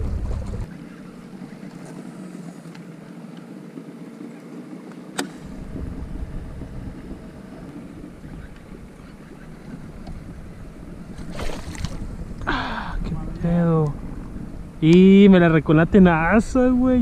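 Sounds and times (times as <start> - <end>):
wind buffeting microphone: 0.0 - 1.6, 5.4 - 17.0
water lapping against kayak: 5.4 - 13.1.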